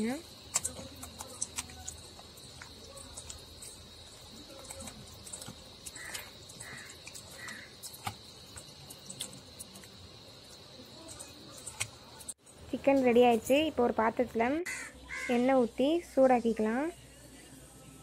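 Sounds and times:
wet squelches of chicken: 0:00.5 - 0:09.9.

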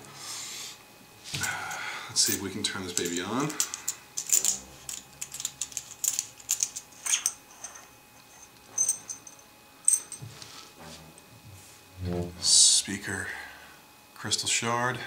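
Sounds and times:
high metallic clinks: 0:02.2 - 0:10.2
metal parts clicking and scraping: 0:02.2 - 0:10.2.

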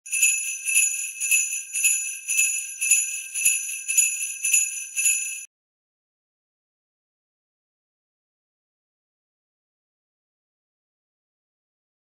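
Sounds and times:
sleigh bells jingling: 0:00.0 - 0:05.5.

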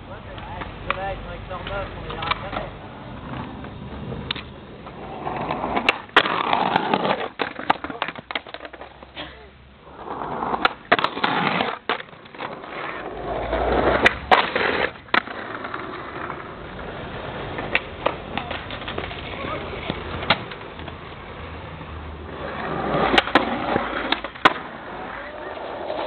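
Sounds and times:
skateboard wheels rolling on concrete: 0:00.0 - 0:26.0
skateboard tail clacks: 0:00.3 - 0:09.2, 0:09.9 - 0:26.0.

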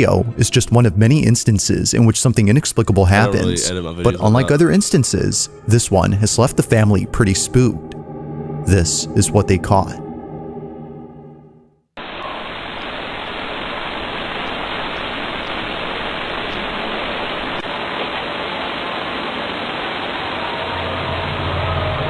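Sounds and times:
steady rushing hiss: 0:12.0 - 0:21.9.

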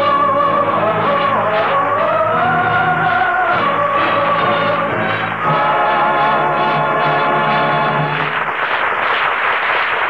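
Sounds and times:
orchestral chord: 0:03.9 - 0:08.2
audience applauding: 0:06.7 - 0:10.0.

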